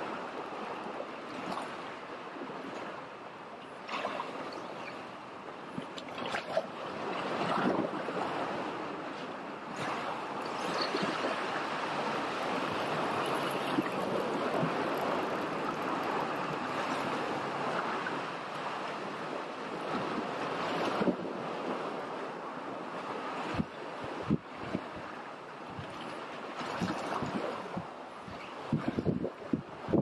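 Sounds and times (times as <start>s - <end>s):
sea water washing against rocks: 9.7s - 21.9s.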